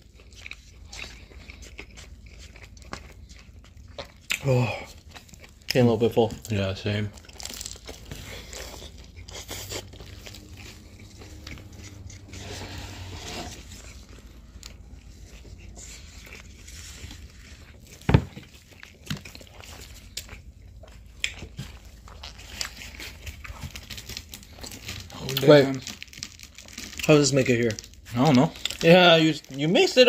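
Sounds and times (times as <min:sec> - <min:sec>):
chewing crunchy food: 0:00.0 - 0:30.0.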